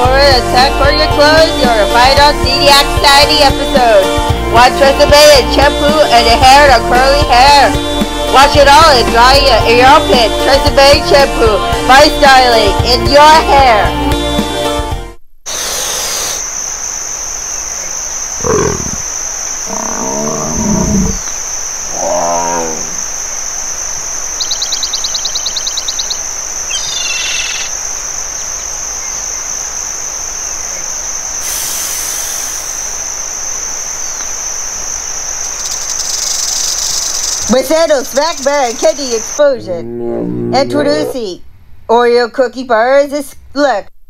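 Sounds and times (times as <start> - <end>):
high-pitched hiss: 15.5 - 39.5
dinosaur roar calls: 18.4 - 19.1, 19.7 - 23.0, 39.4 - 41.3.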